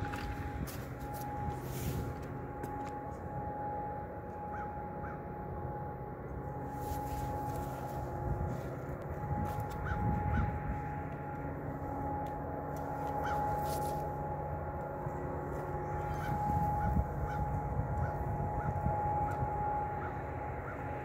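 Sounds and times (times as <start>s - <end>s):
low droning hum: 0.0s - 21.0s
crow cawing: 13.2s - 13.6s.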